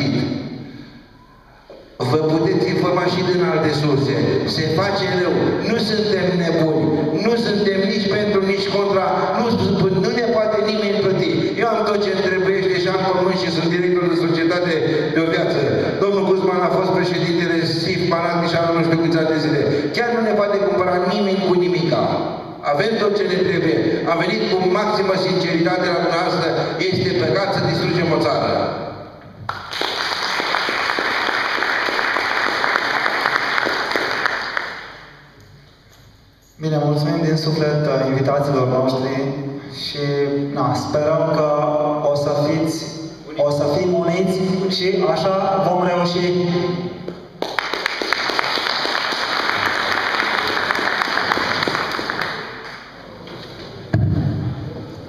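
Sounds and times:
audience applause: 0:29.5 - 0:35.0, 0:47.4 - 0:52.8.

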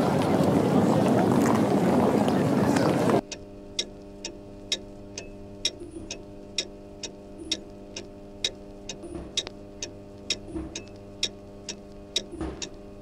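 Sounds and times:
low steady hum: 0:00.0 - 0:13.0
clock ticking: 0:03.2 - 0:12.8.

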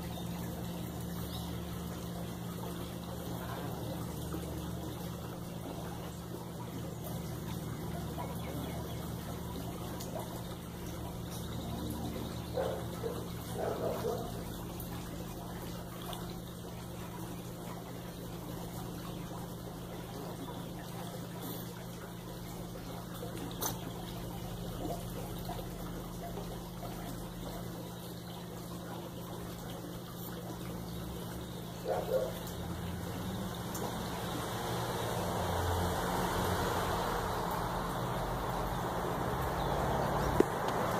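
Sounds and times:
pool pump hum: 0:00.0 - 0:40.9
water trickling: 0:00.0 - 0:40.9.

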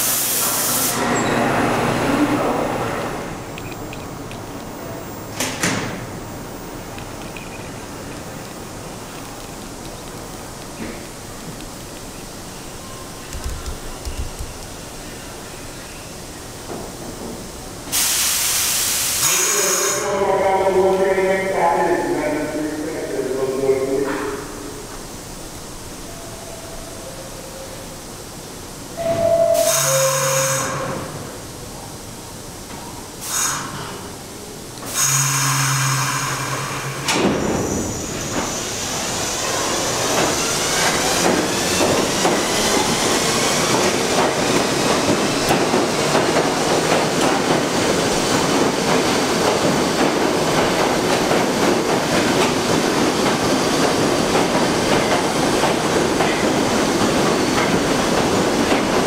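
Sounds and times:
train air hisses: 0:00.0 - 0:03.2, 0:17.7 - 0:20.2, 0:33.2 - 0:34.2, 0:34.8 - 0:58.6
wheels clattering on rail: 0:39.4 - 0:59.0.

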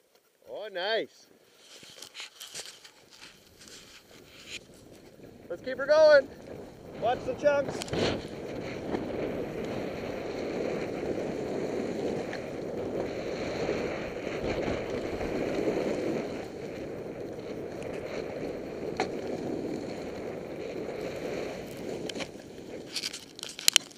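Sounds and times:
wind on microphone: 0:03.4 - 0:23.7
snow hissing under skis: 0:06.6 - 0:23.0.

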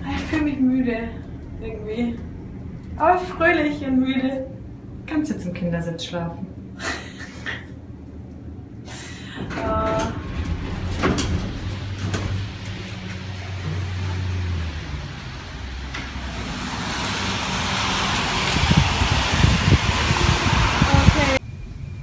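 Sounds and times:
low hum: 0:00.0 - 0:22.0
traffic hiss on wet street: 0:11.5 - 0:21.4.

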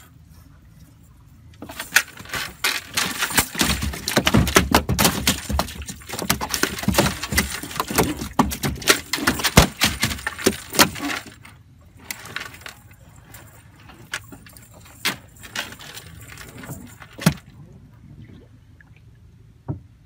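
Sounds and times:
metal chain rattling and clinking: 0:01.6 - 0:17.5.

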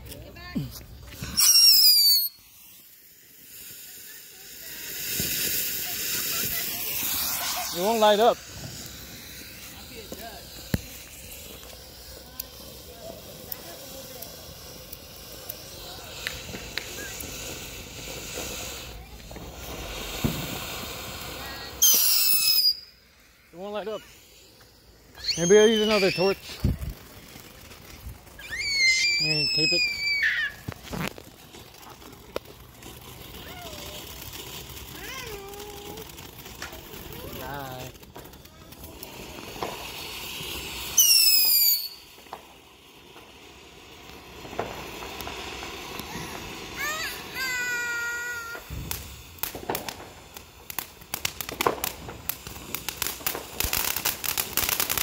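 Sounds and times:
faint crackles: 0:00.0 - 0:55.0
firework spraying sparks hissing: 0:00.0 - 0:55.0
shrill whistle: 0:01.2 - 0:02.4, 0:21.8 - 0:23.0, 0:25.1 - 0:26.6, 0:28.4 - 0:30.6, 0:40.9 - 0:42.1.

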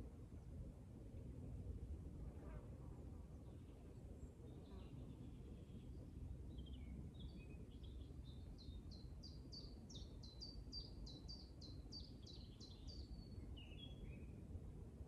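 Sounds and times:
faint low rumble: 0:00.0 - 0:08.4
songbird singing: 0:03.4 - 0:14.4.

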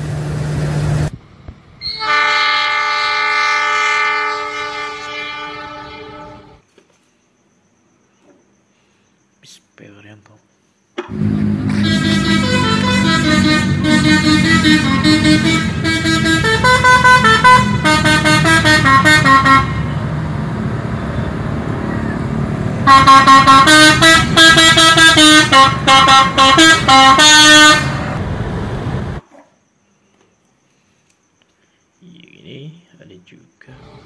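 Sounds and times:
bus engine running: 0:00.0 - 0:01.8, 0:11.0 - 0:29.2
melodic air horn: 0:01.8 - 0:06.6, 0:11.6 - 0:19.9, 0:22.8 - 0:28.1.

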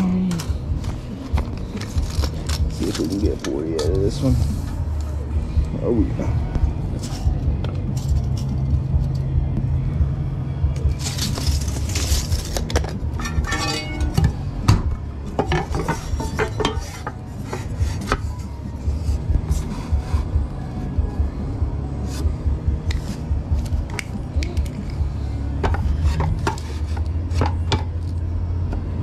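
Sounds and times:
lumber and metal tools clattering: 0:11.0 - 0:14.4, 0:15.2 - 0:18.4.

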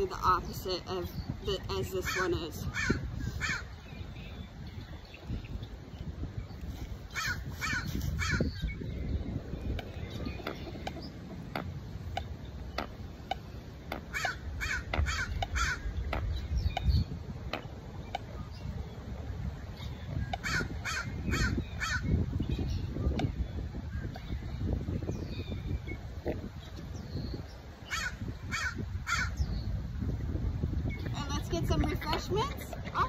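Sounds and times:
wind rumble on microphone: 0:00.0 - 0:33.0
crows cawing: 0:02.1 - 0:03.8, 0:07.1 - 0:08.5, 0:14.1 - 0:15.9, 0:20.4 - 0:22.1, 0:27.9 - 0:29.4.

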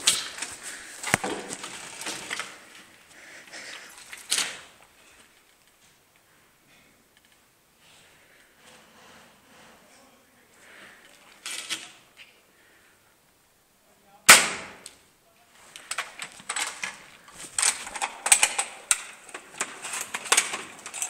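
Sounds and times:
footsteps crunching over rubble: 0:00.0 - 0:03.2, 0:15.5 - 0:18.2
airsoft rifle firing: 0:14.3 - 0:14.9.

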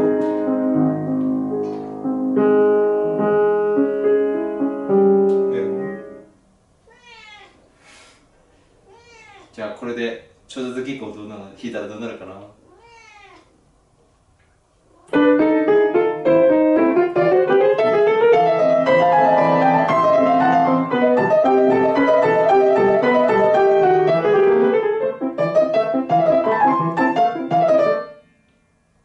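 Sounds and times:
grand piano playing: 0:00.0 - 0:06.3, 0:15.1 - 0:28.3.

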